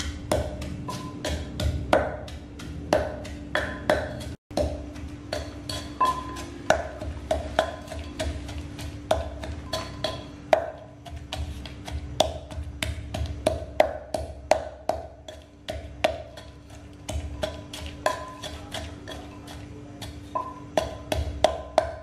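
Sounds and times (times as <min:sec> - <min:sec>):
pestle pounding in clay mortar: 0:00.0 - 0:22.0.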